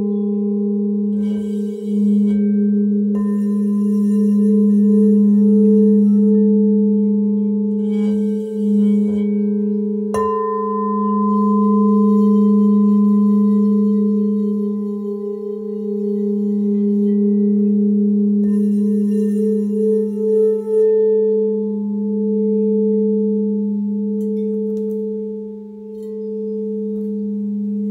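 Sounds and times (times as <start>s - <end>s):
mallet striking bowl: 0.0s - 21.0s
crystal singing bowls ringing: 0.0s - 27.9s.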